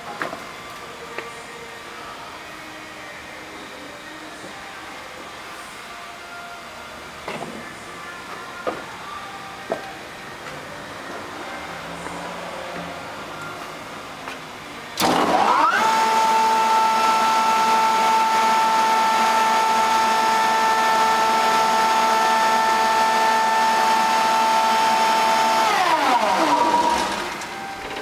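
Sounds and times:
vacuum pump whine: 0:14.9 - 0:28.0.

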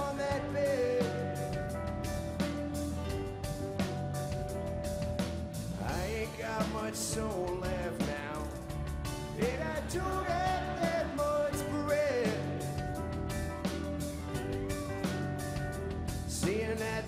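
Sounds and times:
man singing: 0:00.0 - 0:01.8, 0:05.8 - 0:12.9, 0:16.2 - 0:17.0
guitar strumming: 0:00.0 - 0:17.0.

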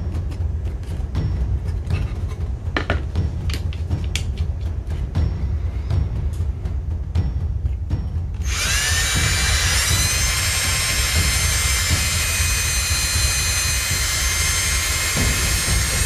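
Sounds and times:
power drill whining: 0:08.4 - 0:16.0.

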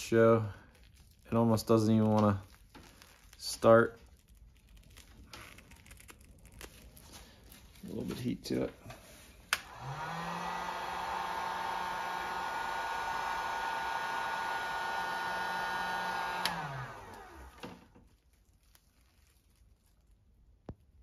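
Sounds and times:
heat gun switch click: 0:09.5 - 0:09.8, 0:16.4 - 0:16.6
heat gun fan whine: 0:09.5 - 0:18.0.

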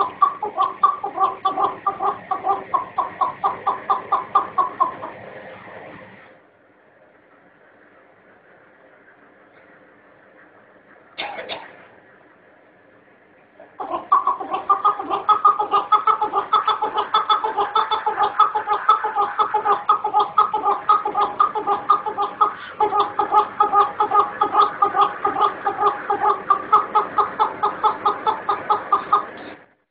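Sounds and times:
partridge clucking call: 0:00.0 - 0:05.1, 0:13.8 - 0:29.5.

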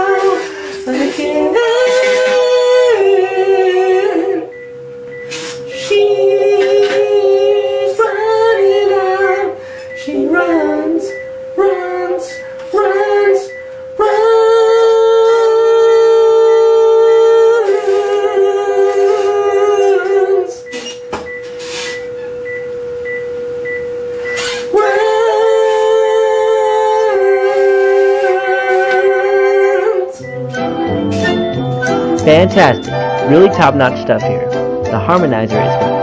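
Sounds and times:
pitch-shifted harmony voice: 0:00.0 - 0:35.9
man singing long held notes: 0:24.7 - 0:30.3.

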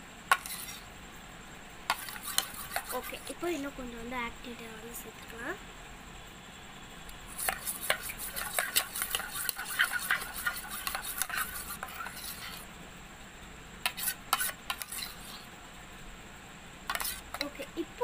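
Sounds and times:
metal spoon stirring in steel bowl: 0:00.3 - 0:00.8, 0:01.9 - 0:03.4, 0:07.3 - 0:12.6, 0:13.9 - 0:15.5, 0:16.9 - 0:17.6.

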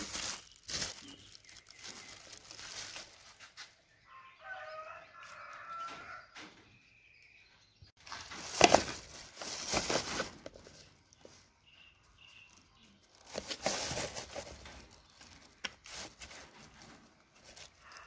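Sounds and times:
plastic packaging crinkling: 0:00.0 - 0:03.8, 0:08.0 - 0:11.4, 0:12.1 - 0:18.0.

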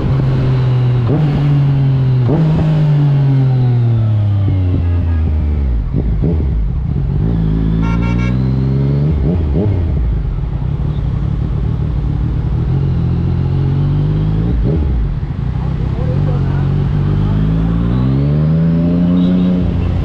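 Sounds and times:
motorcycle engine accelerating: 0:00.0 - 0:20.0
short horn toot: 0:07.8 - 0:08.5.

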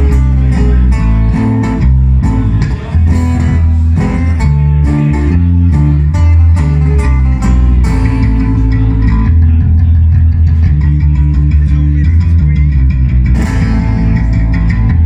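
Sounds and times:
acoustic guitars strumming: 0:00.0 - 0:15.0
electric bass line: 0:00.0 - 0:15.0.

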